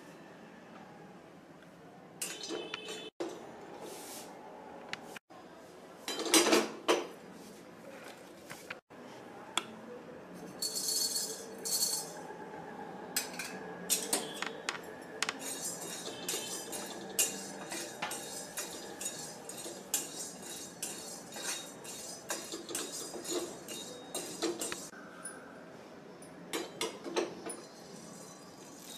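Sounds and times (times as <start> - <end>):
spices rattling on metal: 15.2 - 24.9
spatula scraping a steel pan: 15.3 - 24.9.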